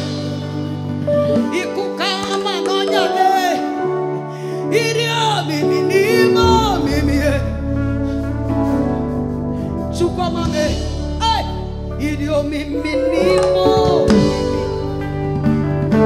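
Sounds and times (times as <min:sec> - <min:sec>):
keyboard: 0:00.0 - 0:16.0
woman singing with vibrato: 0:06.1 - 0:07.4
bass guitar: 0:06.1 - 0:16.0.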